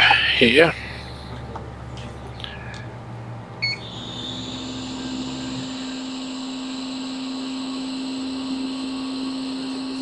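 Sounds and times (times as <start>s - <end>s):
high whine: 0.0s - 10.0s
hot air station fan hum: 0.0s - 10.0s
air hiss: 3.8s - 7.5s.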